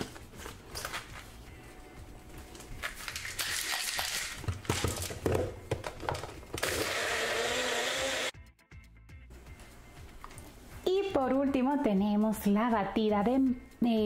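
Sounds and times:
blender motor whirring: 0:06.6 - 0:08.4.

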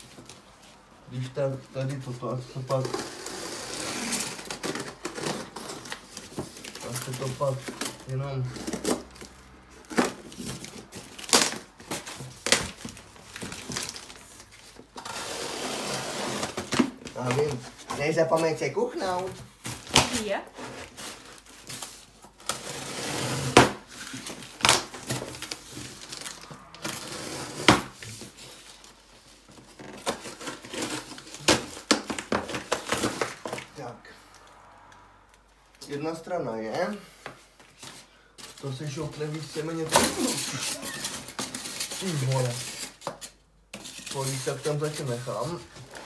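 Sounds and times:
packaging crinkling and crackling: 0:04.1 - 0:15.0, 0:23.9 - 0:27.2, 0:37.7 - 0:46.0
cardboard packaging knocks and scrapes: 0:14.6 - 0:18.2, 0:19.2 - 0:28.8, 0:29.4 - 0:33.7.

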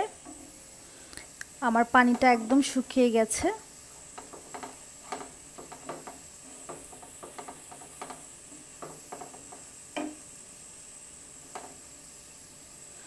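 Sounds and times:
faint sizzle of frying: 0:00.0 - 0:13.0
wooden spoon scraping a pan: 0:03.9 - 0:10.3
spoon tapping against pan: 0:04.1 - 0:10.3, 0:11.5 - 0:11.8.

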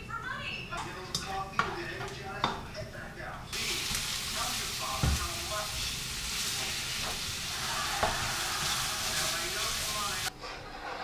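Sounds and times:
meat sizzling in a pan: 0:03.5 - 0:10.3
utensil knocking against pan: 0:08.0 - 0:08.3.

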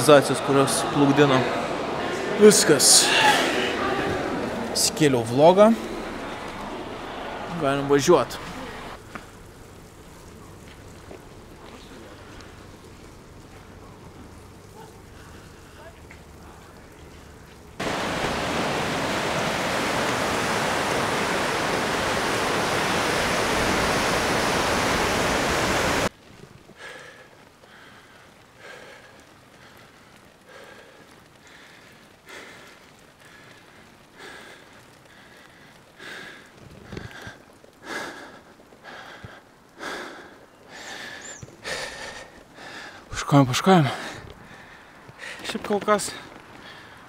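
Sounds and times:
loud rush of noise: 0:00.0 - 0:09.0, 0:17.8 - 0:26.1
heavy rhythmic breathing: 0:26.8 - 0:45.5.

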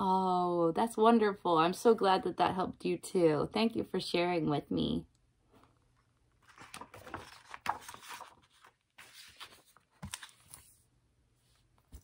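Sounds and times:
book pages rustling and flapping: 0:05.5 - 0:10.9, 0:11.5 - 0:12.0.

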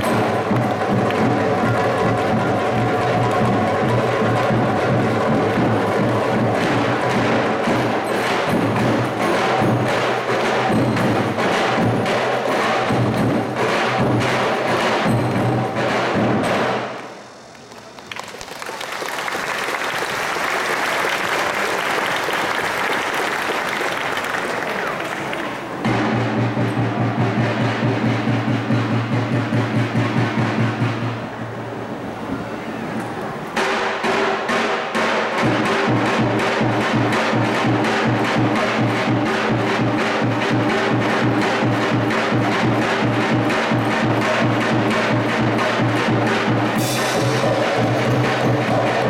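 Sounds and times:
audience applause: 0:00.0 - 0:06.6, 0:17.0 - 0:25.9
bass drums and frame drums beating: 0:00.0 - 0:17.8, 0:25.8 - 0:31.4, 0:35.3 - 0:49.0.

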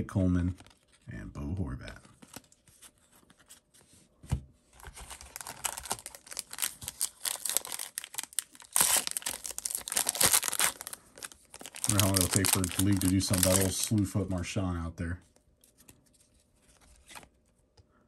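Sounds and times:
foil wrapper crinkling and tearing: 0:04.8 - 0:14.1.

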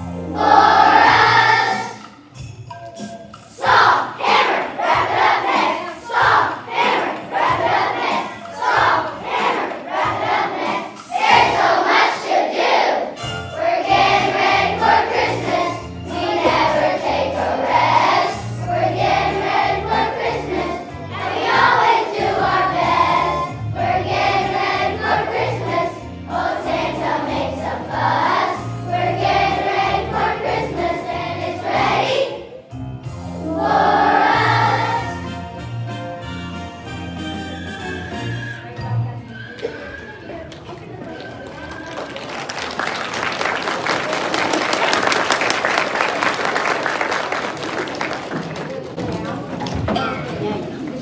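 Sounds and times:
children's choir singing: 0:00.0 - 0:02.2, 0:03.5 - 0:32.7, 0:33.4 - 0:35.4
instrumental accompaniment: 0:00.0 - 0:41.0.

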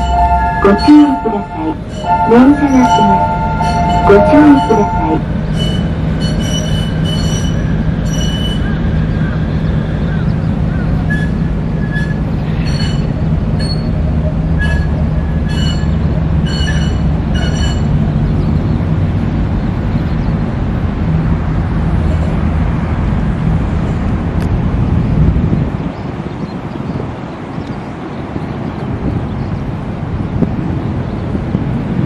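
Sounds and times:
tram rumbling: 0:00.0 - 0:32.0
wheels squealing: 0:01.8 - 0:09.4, 0:11.0 - 0:18.0.

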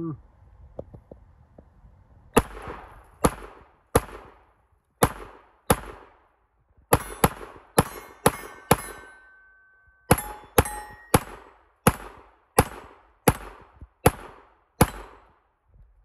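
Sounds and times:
gunshots: 0:02.4 - 0:06.2, 0:06.9 - 0:09.1, 0:10.1 - 0:15.3
bullets clanging off steel plates: 0:06.9 - 0:11.5.

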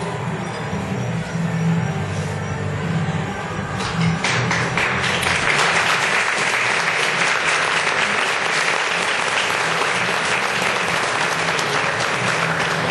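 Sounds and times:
audience applauding: 0:04.2 - 0:12.9.

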